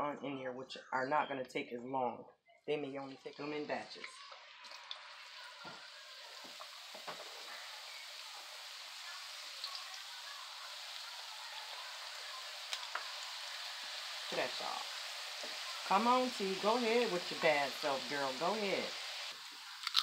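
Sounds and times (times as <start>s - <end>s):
potatoes sizzling in hot oil: 3.2s - 20.0s
oil popping and crackling: 3.3s - 20.0s.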